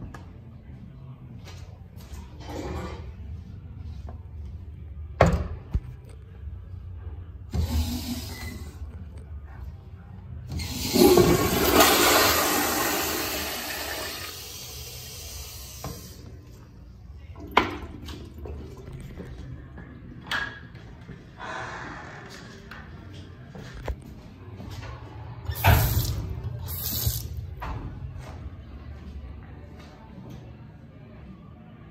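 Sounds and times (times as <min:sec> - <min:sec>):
toilet flushing water rush: 0:10.5 - 0:16.2.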